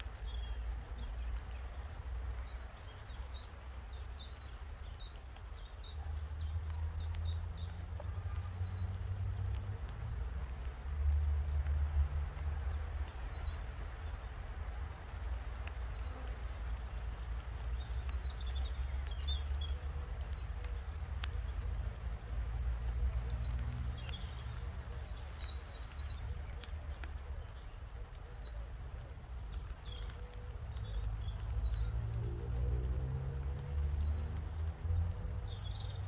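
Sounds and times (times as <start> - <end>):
small birds chirping: 0.0 - 36.0.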